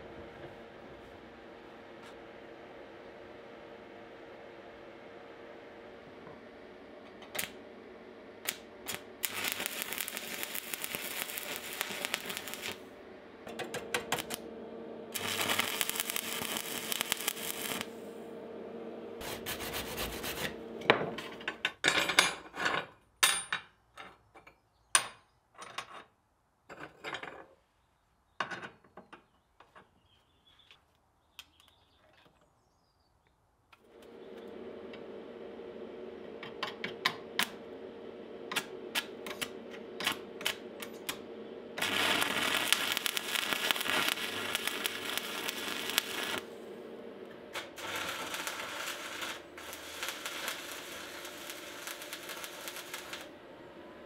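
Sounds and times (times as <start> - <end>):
angle grinder cutting metal: 8.4 - 18.2, 36.2 - 53.8.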